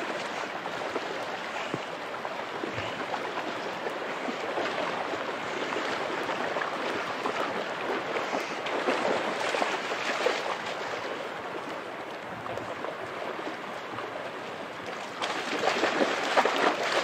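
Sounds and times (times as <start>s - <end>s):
water rushing over rocks: 0.0s - 17.0s
dog splashing through water: 2.6s - 11.2s, 14.9s - 17.0s.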